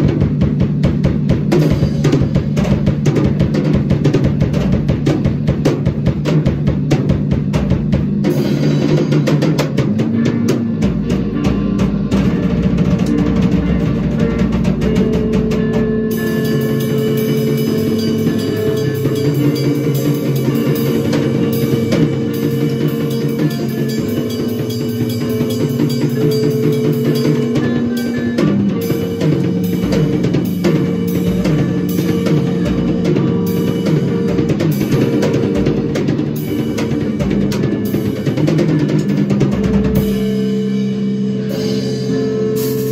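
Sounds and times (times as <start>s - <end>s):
droning electric bass: 0.0s - 42.9s
drum kit played hard: 0.0s - 42.9s.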